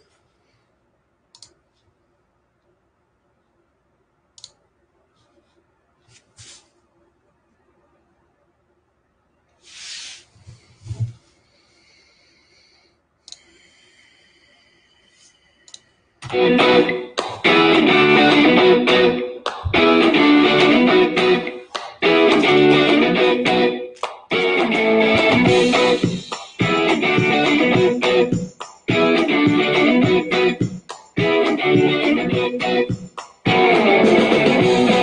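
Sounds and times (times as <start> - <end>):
guitar-led intro music: 16.2 - 35.0.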